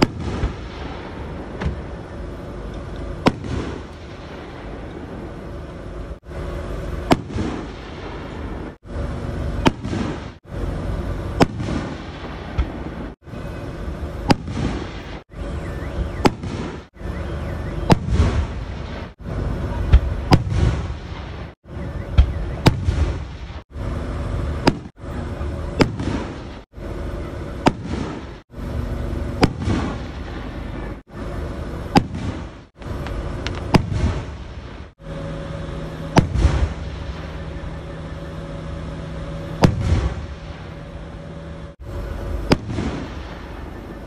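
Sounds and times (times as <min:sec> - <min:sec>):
rumbling crackle: 0:00.0 - 0:44.0.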